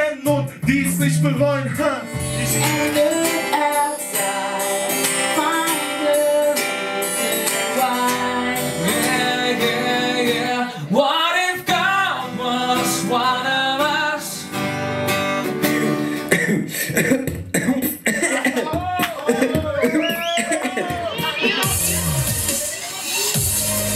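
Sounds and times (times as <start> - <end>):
person singing: 0.0 - 15.0
strummed acoustic guitar: 0.0 - 18.8.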